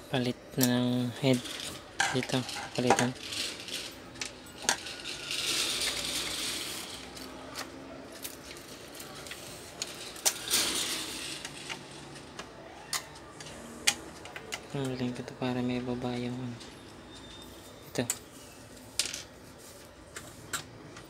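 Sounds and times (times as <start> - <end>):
plastic parts clicking: 0.6 - 15.2.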